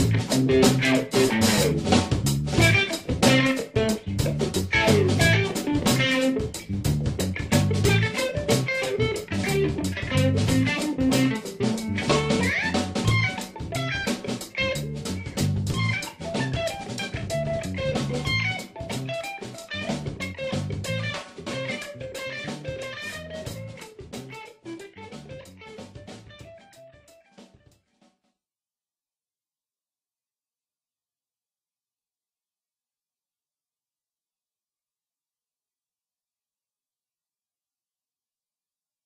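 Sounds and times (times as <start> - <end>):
bass: 0.0 - 26.8
band music: 0.0 - 26.9
drum kit beat: 0.0 - 27.2
electric guitar: 0.0 - 27.3.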